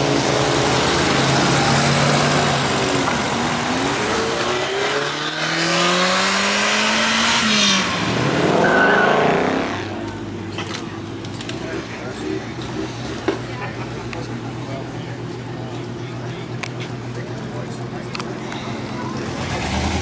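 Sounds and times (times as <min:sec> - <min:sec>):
sports car revving past: 0:00.0 - 0:10.0, 0:19.2 - 0:20.0
sports car accelerating hard: 0:00.0 - 0:10.1, 0:19.1 - 0:20.0.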